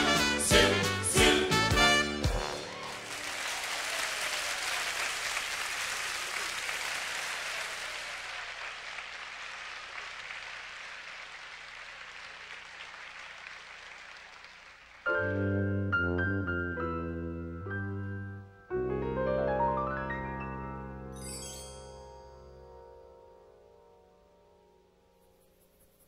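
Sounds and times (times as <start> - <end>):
piano music: 0.0 - 2.6, 15.1 - 25.4
audience applauding: 2.3 - 15.2.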